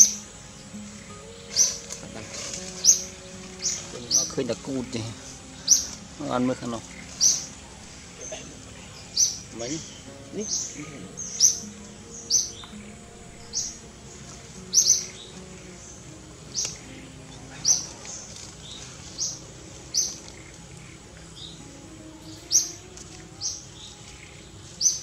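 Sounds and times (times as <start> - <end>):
bird chirping high and sharp: 0.0 - 13.9.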